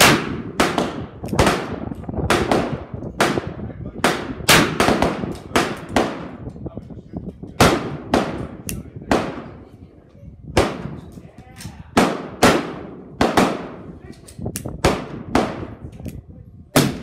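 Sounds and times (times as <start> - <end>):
gunshots: 0.0 - 6.4, 7.6 - 9.6, 11.9 - 13.9, 14.8 - 15.8, 16.8 - 17.0.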